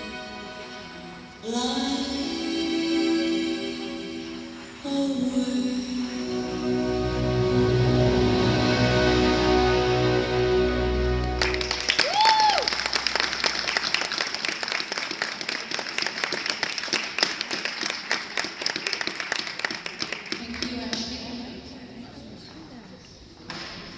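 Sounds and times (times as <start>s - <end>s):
scattered applause: 11.3s - 21.3s
person whooping: 12.0s - 12.9s.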